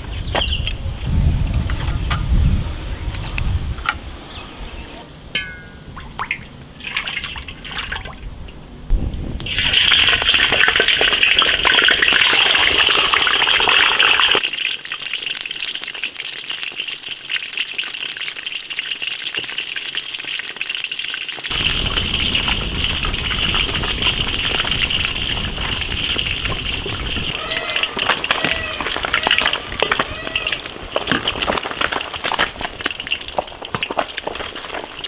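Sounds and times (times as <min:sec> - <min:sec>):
fish sizzling in hot oil: 0:09.4 - 0:35.0.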